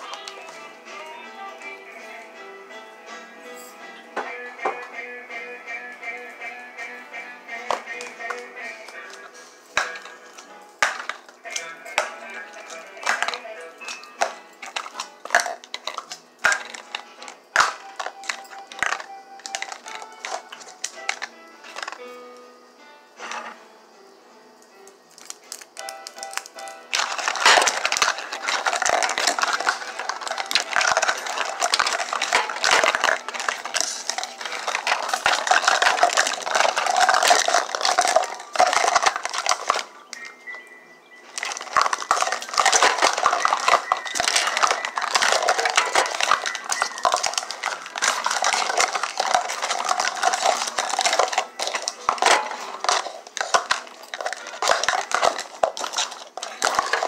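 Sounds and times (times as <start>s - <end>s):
plastic cups clattering: 0.0s - 1.2s, 3.6s - 5.0s, 7.6s - 22.2s, 23.2s - 23.6s, 25.1s - 40.5s, 41.2s - 57.0s
nails clicking on plastic: 9.8s - 22.0s, 25.1s - 40.3s, 41.3s - 57.0s.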